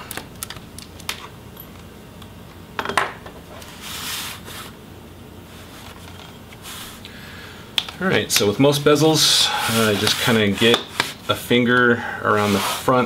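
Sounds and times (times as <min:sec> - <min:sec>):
object sliding across table: 0:12.4 - 0:12.9.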